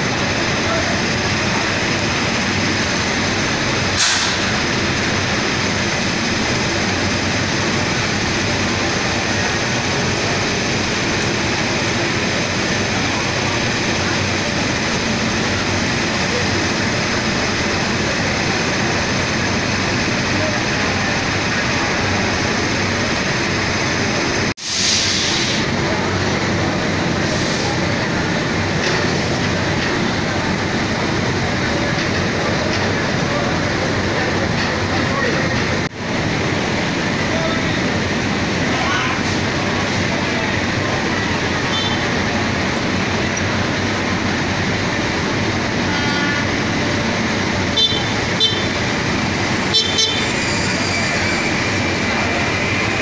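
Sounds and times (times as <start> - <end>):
electric locomotive machinery whirring: 0.0 - 53.0
air hiss: 4.0 - 4.6, 24.6 - 25.7.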